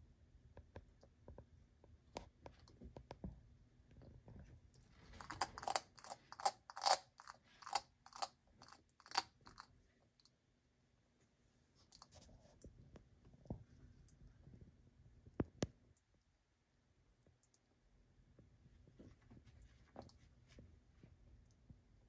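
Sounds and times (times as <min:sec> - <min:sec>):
lizard crunching food pellets: 0:04.8 - 0:09.7.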